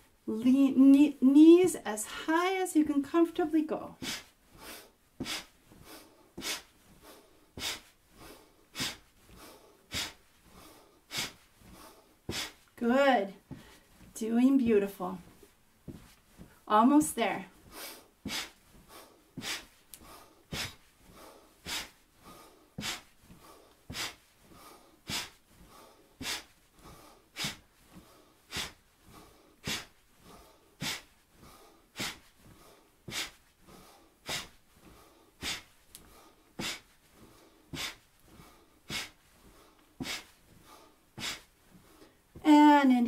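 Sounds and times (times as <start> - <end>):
person breathing hard through nose: 4.0 - 12.7, 13.5 - 14.1, 17.6 - 42.3.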